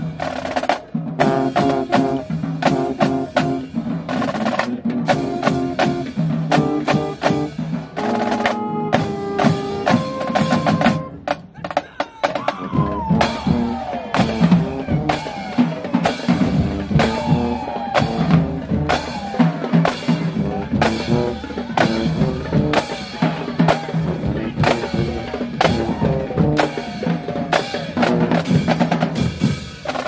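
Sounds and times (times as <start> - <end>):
brass playing a tune: 1.2 - 3.8, 4.6 - 11.4, 13.1 - 26.8.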